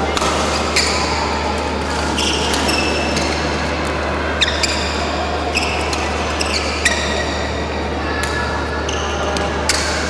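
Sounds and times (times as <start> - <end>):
racket hitting shuttlecock: 0.1 - 1.2, 1.9 - 3.3
shoes squeaking on court: 0.4 - 3.7, 4.4 - 7.6.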